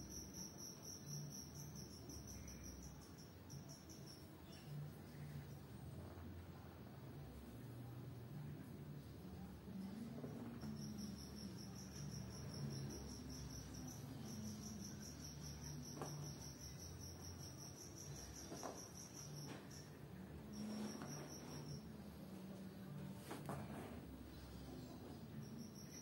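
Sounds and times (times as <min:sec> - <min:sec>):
insect chirping trill: 0:00.0 - 0:05.6, 0:09.7 - 0:22.7, 0:24.3 - 0:26.0
low steady hum: 0:00.0 - 0:26.0.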